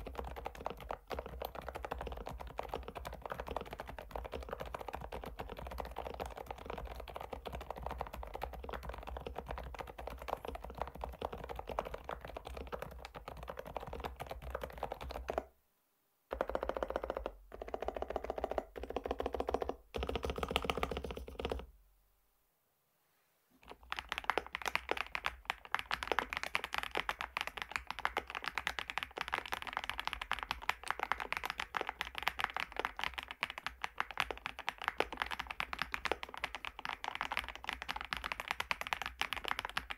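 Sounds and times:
mechanical keyboard keystroke clacks: 0:23.7 - 0:39.9.

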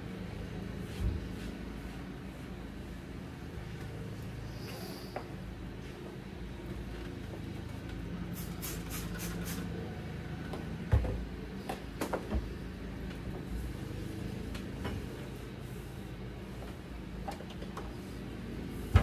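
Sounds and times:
spray bottle spritzing: 0:08.4 - 0:09.7.

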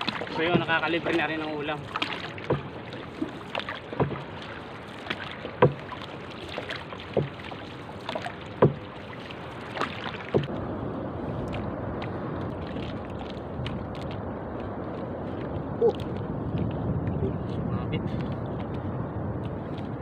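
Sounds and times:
paddle knocking on hull: 0:00.0 - 0:10.6
paddle stroking water: 0:00.0 - 0:20.0
water swishing: 0:00.0 - 0:20.0
wind noise: 0:10.0 - 0:20.0.

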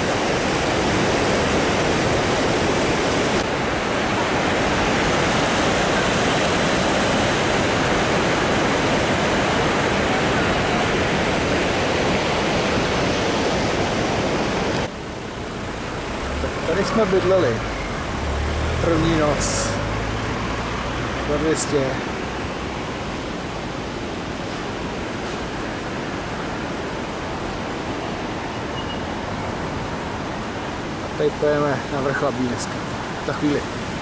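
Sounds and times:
river flowing over stones: 0:00.0 - 0:34.0.

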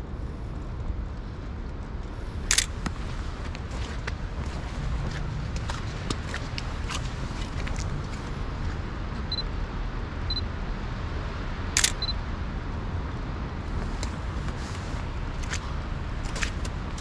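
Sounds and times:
low city traffic rumble: 0:00.0 - 0:17.0
camera focus beeps: 0:02.5 - 0:02.7, 0:11.8 - 0:12.2
camera shutter click: 0:02.5 - 0:02.7, 0:11.8 - 0:12.1.

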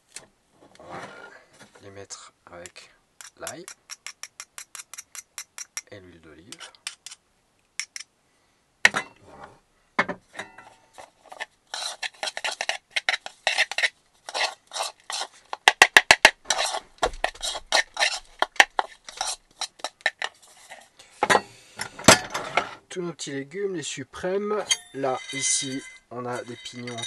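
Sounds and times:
spoon scraping in a bowl: 0:10.6 - 0:15.4, 0:16.5 - 0:20.9, 0:24.6 - 0:27.0.

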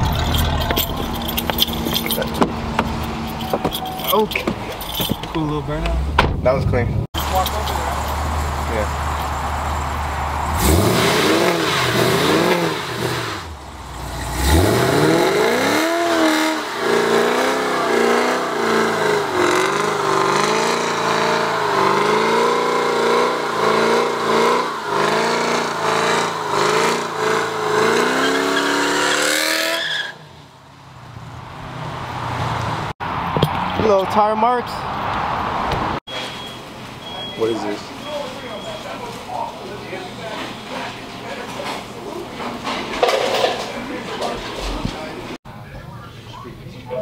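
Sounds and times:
car engine revving: 0:00.0 - 0:30.1
spinning tyre noise: 0:07.2 - 0:33.8.

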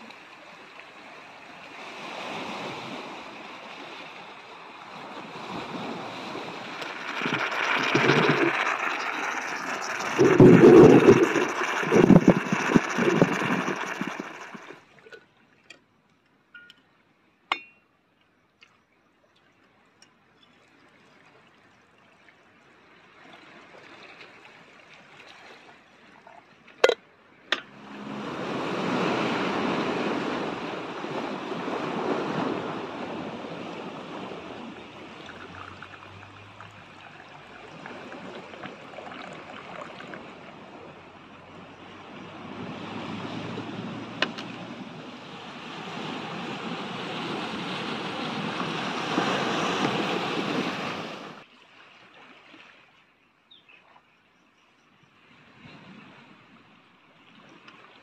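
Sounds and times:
sea surf: 0:00.0 - 0:14.8, 0:27.5 - 0:51.4
liquid pouring: 0:06.2 - 0:14.8, 0:35.0 - 0:40.5.

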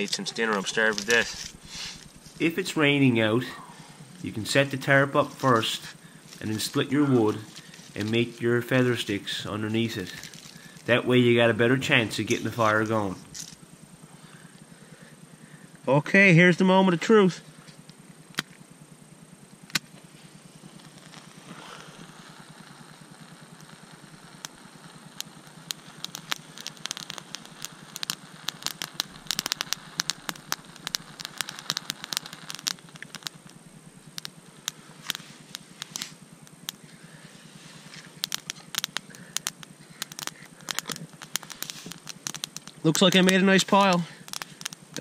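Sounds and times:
wood shavings crackling in fire: 0:00.0 - 0:45.0.

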